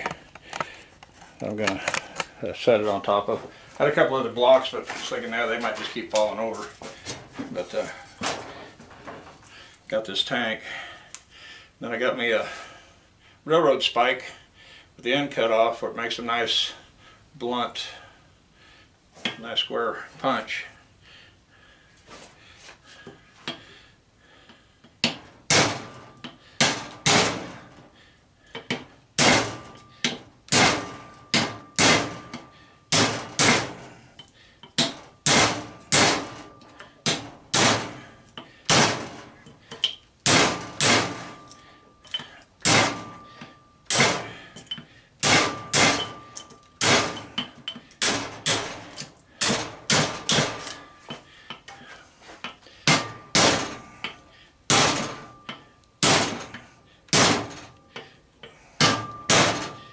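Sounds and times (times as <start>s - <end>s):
hammer striking steel punch: 25.5s - 27.6s, 29.2s - 33.8s, 34.8s - 38.0s, 38.7s - 39.2s, 40.3s - 41.5s, 42.6s - 44.4s, 45.2s - 48.8s, 49.4s - 50.8s, 52.9s - 57.6s, 58.8s - 59.8s
metallic ring: 43.0s - 47.9s, 58.4s - 59.9s.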